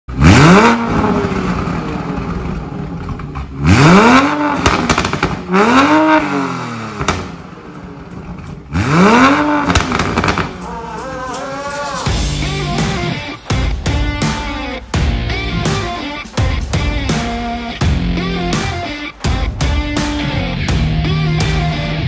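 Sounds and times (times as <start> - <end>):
car engine revving: 0.1 - 22.0
exhaust pops and crackles: 0.9 - 10.7.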